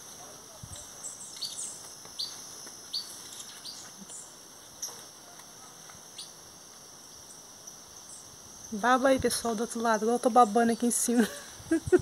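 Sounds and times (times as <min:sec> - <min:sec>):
high insect drone: 0:00.0 - 0:12.0
bird chirping: 0:00.8 - 0:05.0.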